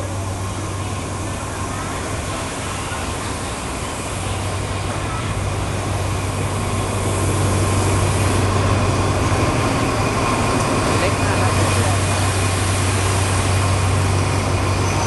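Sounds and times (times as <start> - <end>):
locomotive engine humming: 0.0 - 15.0.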